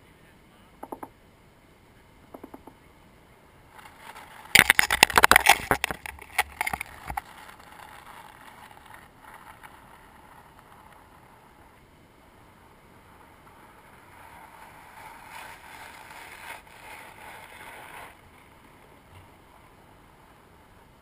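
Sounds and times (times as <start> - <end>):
crab legs scratchy clicks: 3.8 - 11.0.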